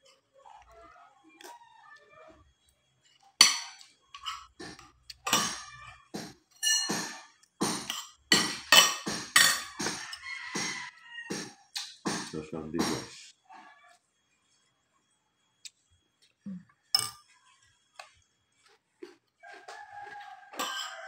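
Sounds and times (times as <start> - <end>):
cutlery clinking on ceramic plate: 3.4 - 5.7, 6.5 - 10.7, 20.5 - 21.0.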